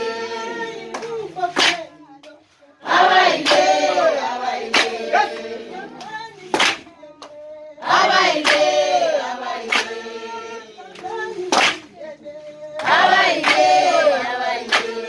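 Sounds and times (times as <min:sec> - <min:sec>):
group singing: 0:00.0 - 0:15.0
sharp claps: 0:00.9 - 0:02.4, 0:03.3 - 0:04.0, 0:04.6 - 0:05.1, 0:06.0 - 0:07.4, 0:08.0 - 0:08.9, 0:09.6 - 0:10.0, 0:10.9 - 0:12.0, 0:12.7 - 0:15.0.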